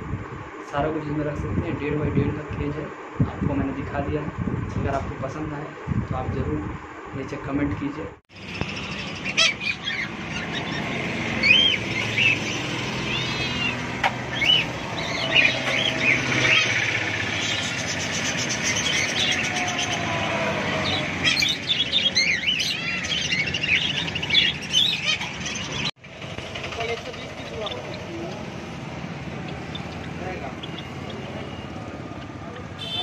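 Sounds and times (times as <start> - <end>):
steady background noise: 0.0 - 33.0
birds chirping and whistling: 8.3 - 26.0, 27.1 - 33.0.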